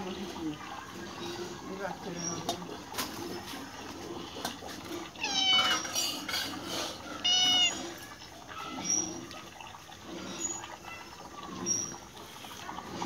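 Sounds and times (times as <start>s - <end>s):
cat meowing: 5.2s - 5.9s, 7.2s - 7.8s.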